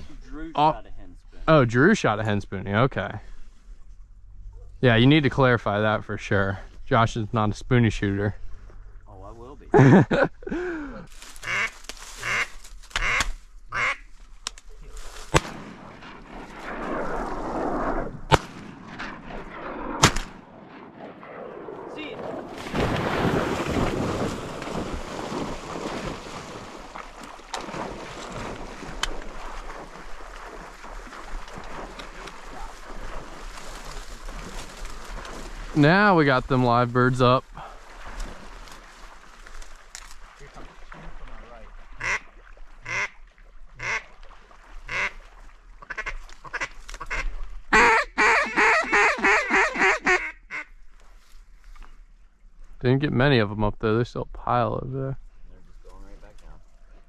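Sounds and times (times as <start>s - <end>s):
waterfowl honking and quacking: 11.4s - 14.1s, 41.9s - 43.2s, 43.8s - 44.2s, 44.8s - 50.8s
shotgun shot boom: 15.3s - 17.1s, 18.3s - 23.3s.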